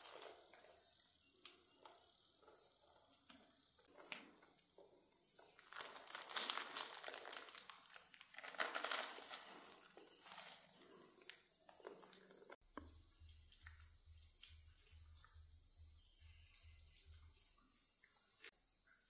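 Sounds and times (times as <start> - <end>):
rustling and crinkling: 0.0 - 12.6.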